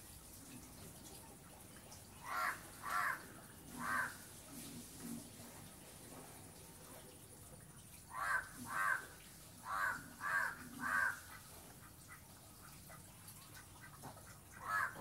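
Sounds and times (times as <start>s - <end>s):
crow cawing: 2.2s - 4.2s, 8.1s - 11.2s, 14.6s - 15.0s.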